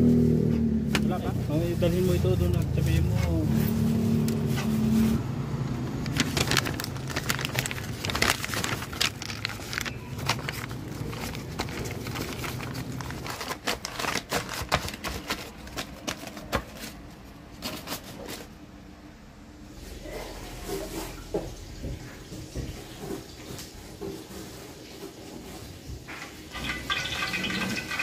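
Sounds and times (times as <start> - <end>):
paper crackling and rustling: 1.9 - 18.6, 23.0 - 28.0
oil pouring into wok: 26.5 - 28.0.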